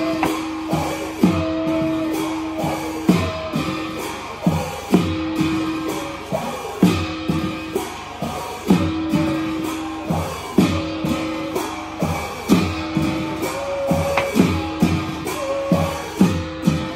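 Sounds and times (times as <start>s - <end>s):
repeating drum pattern: 0.0s - 16.9s
held tone: 13.9s - 14.8s.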